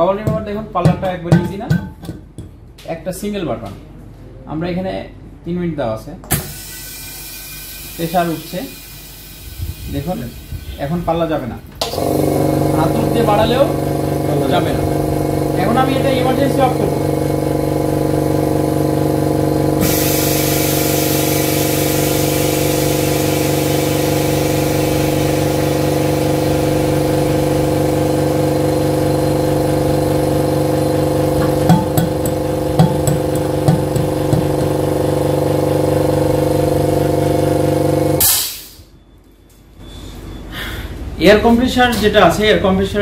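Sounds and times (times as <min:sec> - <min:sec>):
air compressor running: 0:06.3 - 0:38.9.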